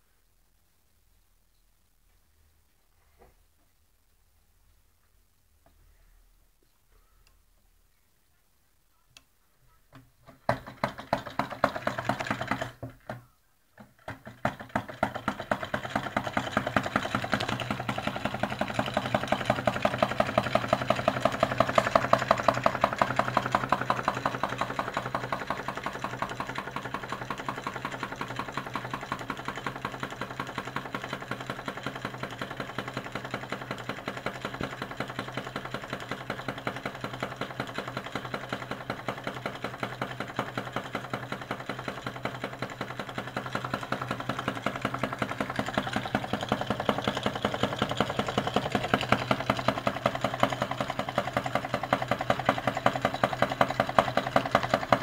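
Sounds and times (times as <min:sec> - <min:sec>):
small engine clattering rhythmically: 0:10.3 - 0:12.9, 0:13.8 - 0:55.0.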